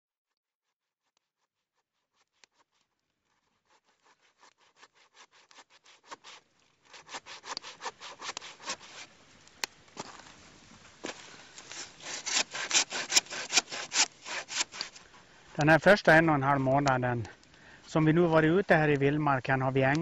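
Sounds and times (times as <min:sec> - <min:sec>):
hand saw cutting log: 0:01.3 - 0:09.1, 0:11.6 - 0:15.0.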